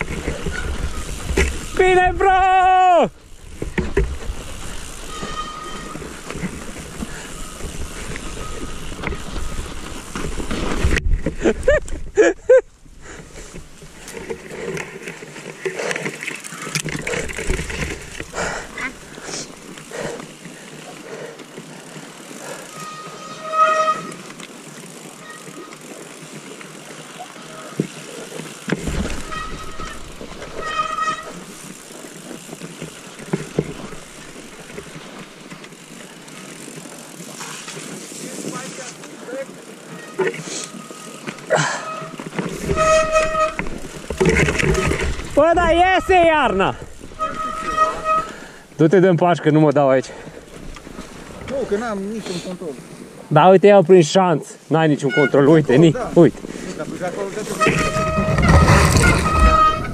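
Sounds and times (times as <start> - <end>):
bike tyres rumbling and rattling: 0.0 - 59.9
rider crying out: 0.5 - 3.4, 39.4 - 43.6.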